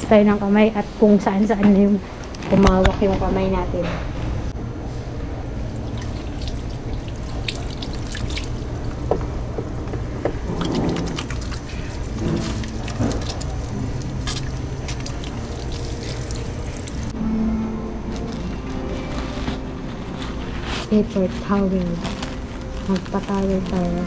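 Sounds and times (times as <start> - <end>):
low background hum: 0.0 - 24.0
hands washing under water: 5.6 - 17.1
tap water running into sink: 5.9 - 17.1.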